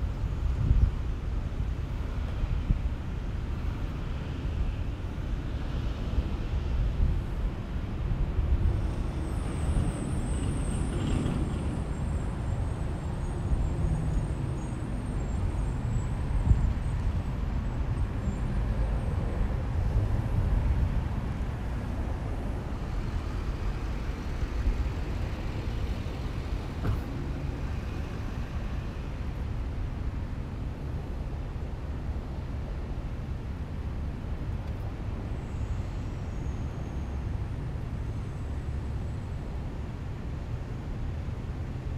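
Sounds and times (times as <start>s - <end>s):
road traffic rumble: 0.0s - 41.9s.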